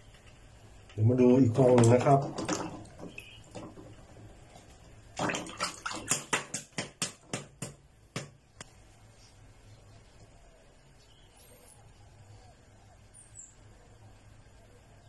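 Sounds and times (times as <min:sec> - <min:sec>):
faint water sounds: 0:00.9 - 0:06.6.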